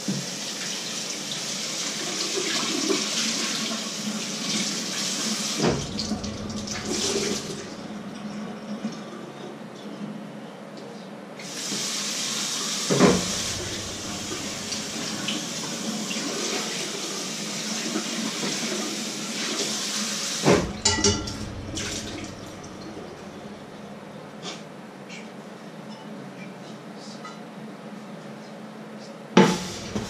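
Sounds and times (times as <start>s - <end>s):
kitchen tap running: 0.4s - 9.0s, 11.5s - 23.8s, 29.4s - 30.0s
clattering knocks: 20.5s - 23.7s
loud knock: 20.5s - 23.8s.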